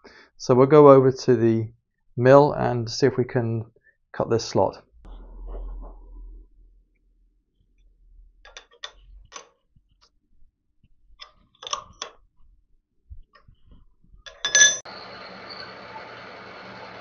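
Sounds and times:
ringing metal clank: 14.3s - 14.9s
milling machine whine: 14.9s - 17.0s.

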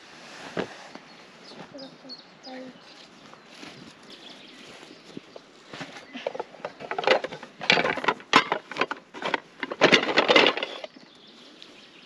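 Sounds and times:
metal pots and cans clinking: 6.2s - 11.0s.

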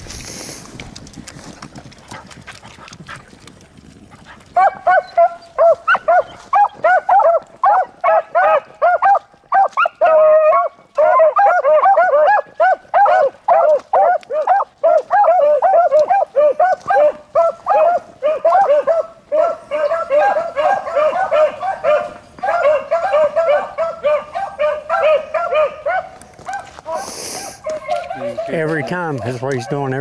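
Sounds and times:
dogs barking: 4.2s - 30.0s
dog baying: 4.6s - 30.0s.

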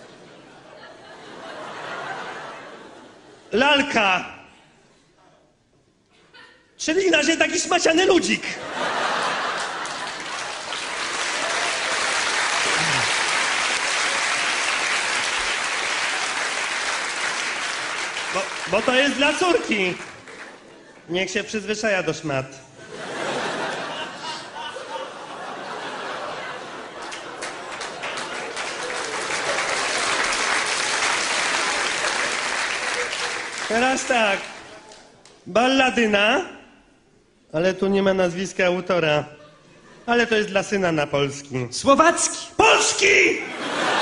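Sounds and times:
audience laughing: 0.0s - 3.5s, 8.4s - 16.7s, 22.8s - 35.0s, 43.4s - 44.0s
audience applauding: 9.0s - 20.7s, 26.8s - 35.1s.

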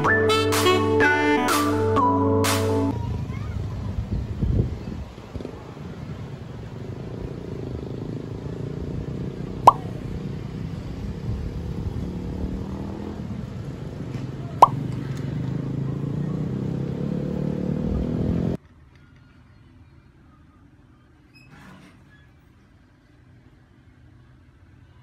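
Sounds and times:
pop sound effects: 9.7s - 9.9s.

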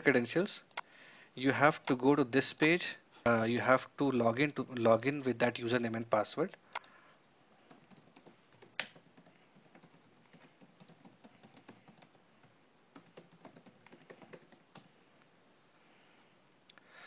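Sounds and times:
faint keyboard typing: 6.7s - 15.0s.

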